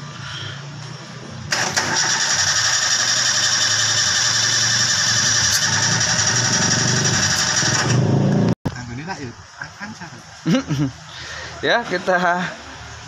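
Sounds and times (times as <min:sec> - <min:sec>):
starter motor cranking engine: 0:01.5 - 0:08.3.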